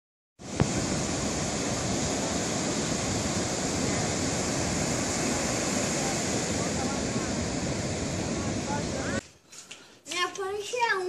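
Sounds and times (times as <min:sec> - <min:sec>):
ocean surf breaking: 0:00.4 - 0:09.2.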